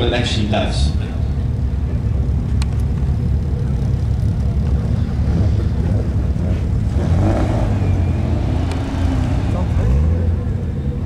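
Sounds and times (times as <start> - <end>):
car engine idling: 0.0 - 11.0
engine revving: 3.6 - 11.0.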